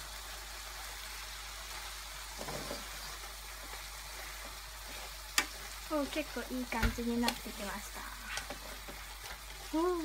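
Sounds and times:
vegetables sizzling in a frying pan: 0.0s - 10.0s
wooden spatula stirring: 2.4s - 10.0s.

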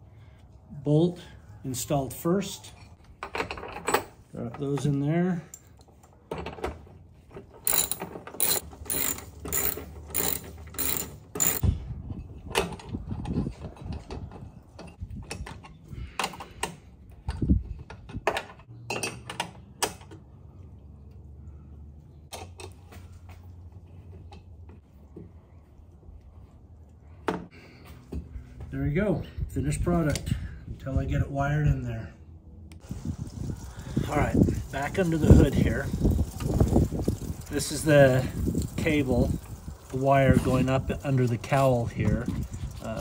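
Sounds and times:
socket ratchet clicking: 7.7s - 11.6s.

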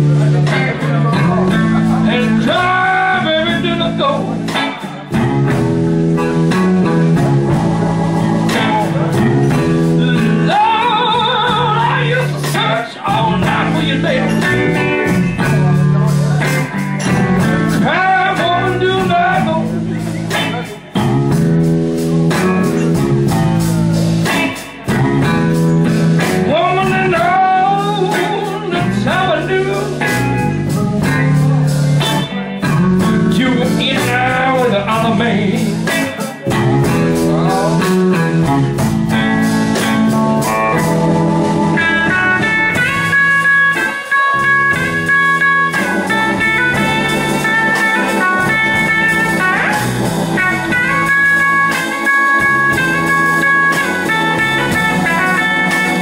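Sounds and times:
live blues band: 0.0s - 56.0s
electric guitar solo: 36.1s - 56.0s.

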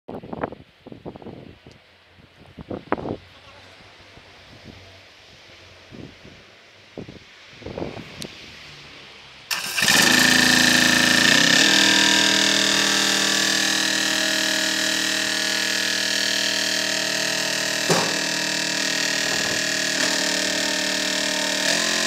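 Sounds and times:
concrete mixer engine running: 9.5s - 22.0s
steady high whine: 9.5s - 22.0s.

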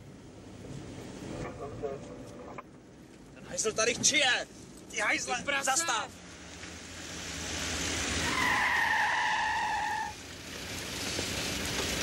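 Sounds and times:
car rushing past: 6.2s - 12.0s.

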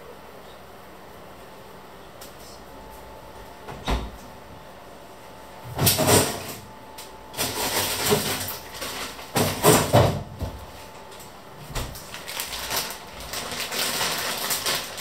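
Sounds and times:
rummaging in a fridge: 5.6s - 6.7s, 7.3s - 15.0s
plastic wrapping rustling: 7.4s - 10.0s, 10.8s - 15.0s.

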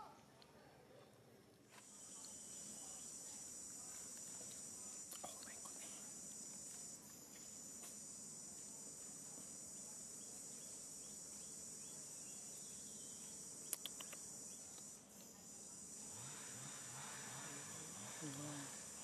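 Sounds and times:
high-pitched insect chorus: 1.9s - 19.0s
sharp clicks: 13.7s - 14.9s.

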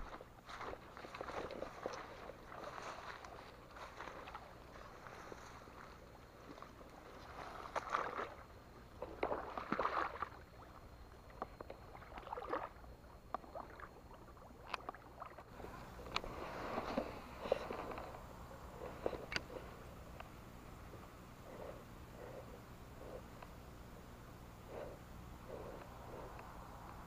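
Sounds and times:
water splashing on pond: 7.1s - 10.8s, 11.7s - 12.8s.

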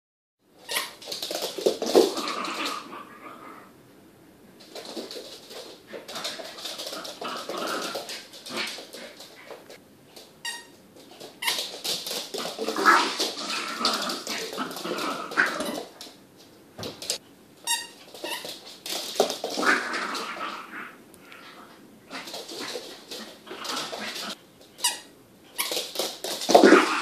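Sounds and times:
puppy play-growling: 0.7s - 3.8s, 4.6s - 9.8s, 11.1s - 16.2s, 18.1s - 24.4s, 25.6s - 27.0s.

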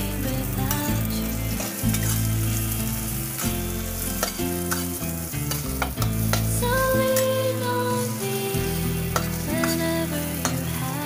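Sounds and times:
vegetables sizzling in oil: 0.0s - 11.0s
metal spatula scraping a wok: 0.7s - 6.6s, 9.1s - 10.8s.

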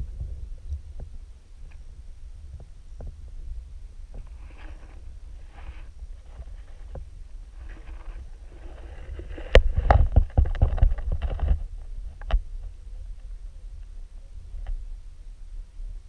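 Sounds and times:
camera housing knocking and scraping: 6.3s - 11.6s.

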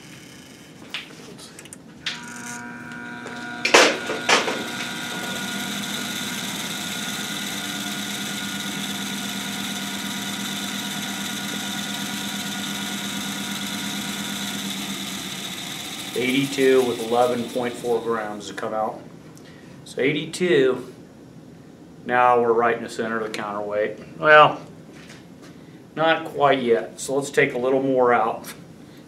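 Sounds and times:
balancing machine hum and whine: 0.0s - 19.3s.

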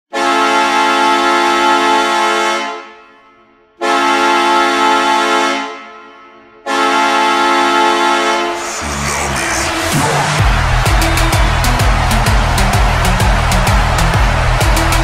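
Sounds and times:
arena goal horn blasts: 0.1s - 8.7s.

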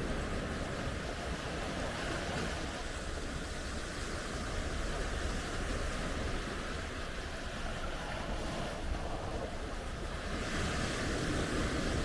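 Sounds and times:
sea waves washing on beach: 0.0s - 12.0s.

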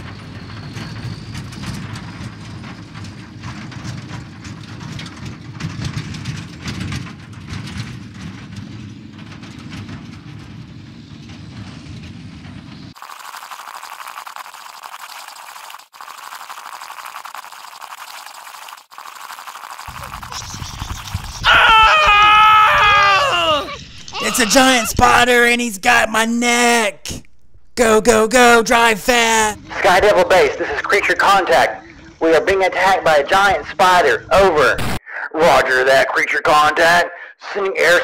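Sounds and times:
vehicle engine rumble: 0.0s - 13.0s
thin high steady sound: 13.0s - 21.3s.

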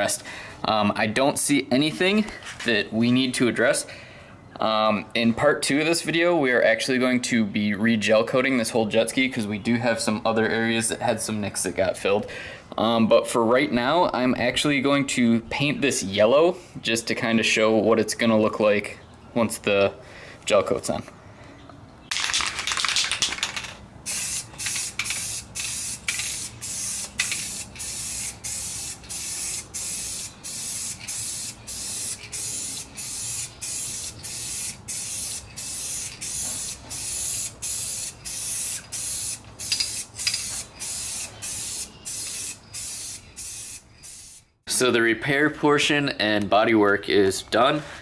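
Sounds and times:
spray paint hissing: 22.1s - 44.6s.

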